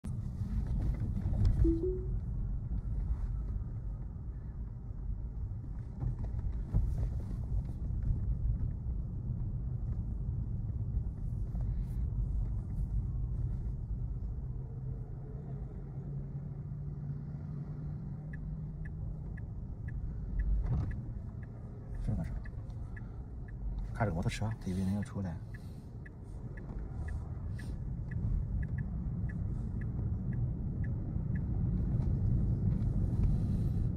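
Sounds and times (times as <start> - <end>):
road and tyre rumble in car: 0.0 - 33.9
turn signal ticking: 17.8 - 33.9.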